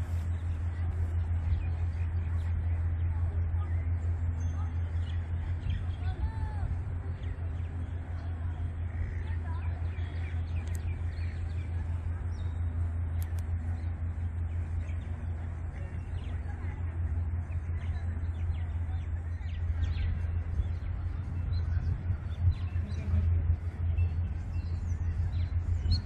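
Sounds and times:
birds chirping: 0.0 - 26.0
steady low rumble: 0.0 - 26.0.

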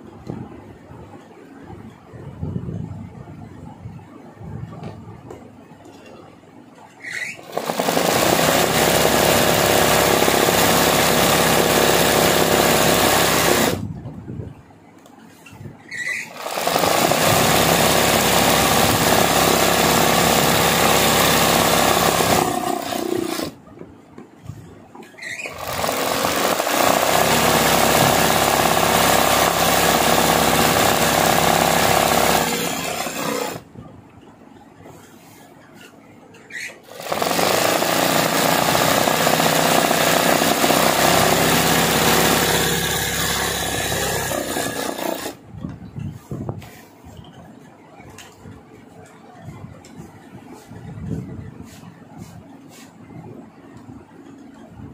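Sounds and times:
sewing machine running fast: 7.4 - 13.8, 16.3 - 23.6, 25.5 - 33.6, 36.9 - 45.4.

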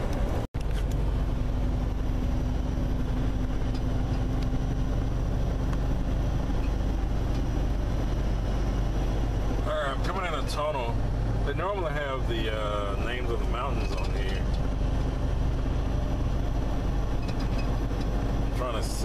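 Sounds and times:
truck engine and road noise: 0.0 - 19.0.

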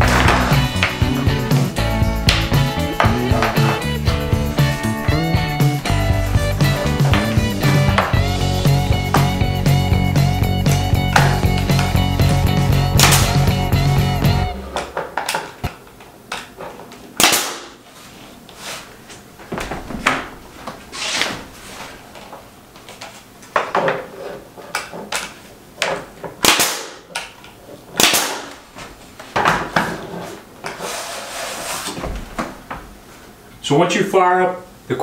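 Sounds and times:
nail gun firing: 13.0 - 13.5, 17.2 - 17.8, 26.4 - 27.3, 28.0 - 28.6.

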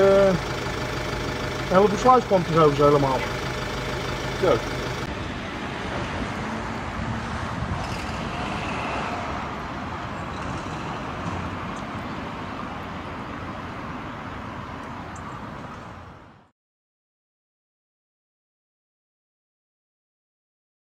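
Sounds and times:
road traffic rumble and hiss: 0.0 - 16.5.

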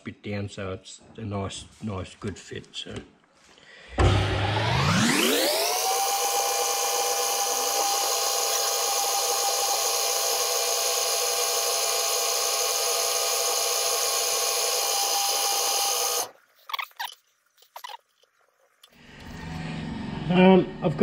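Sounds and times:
metal lathe whining: 4.0 - 16.3.

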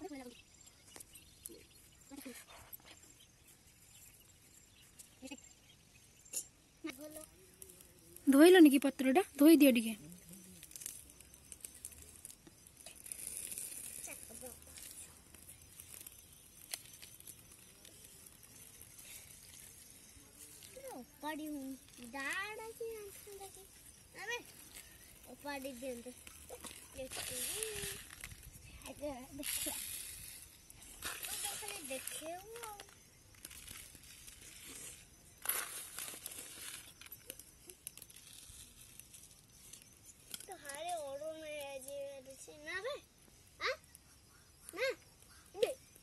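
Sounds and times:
small clicks of handled items: 29.4 - 42.3.

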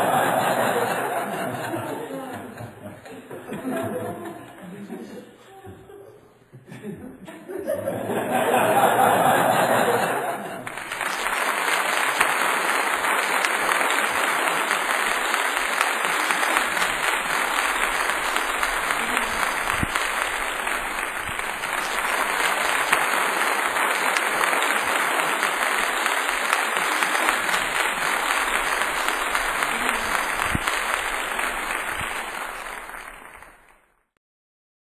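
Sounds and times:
audience applauding: 0.0 - 2.1, 8.1 - 34.0.

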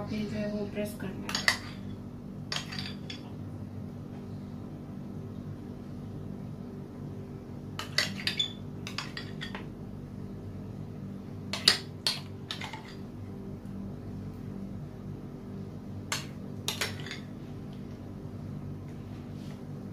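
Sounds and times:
steady low hum: 0.0 - 19.9
metal spoon clinking on glass: 7.8 - 9.6.

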